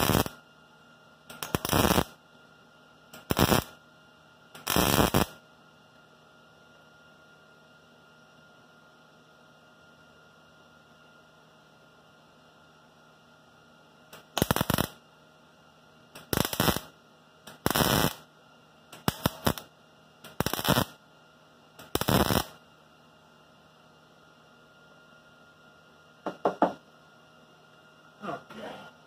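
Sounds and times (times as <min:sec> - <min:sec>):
welder arc bursts: 0:00.0 - 0:00.4, 0:01.3 - 0:02.2, 0:03.2 - 0:03.8, 0:04.6 - 0:05.4, 0:14.2 - 0:15.0, 0:16.2 - 0:18.3, 0:18.9 - 0:21.0, 0:21.8 - 0:22.6
faint steady hum: 0:00.0 - 0:29.0.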